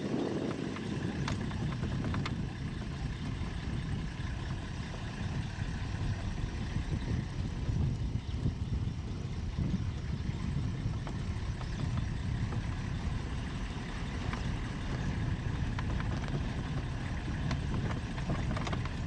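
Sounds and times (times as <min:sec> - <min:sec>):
vehicle engine rumbling: 0:00.0 - 0:19.0
light knocks and rattles: 0:10.6 - 0:19.0.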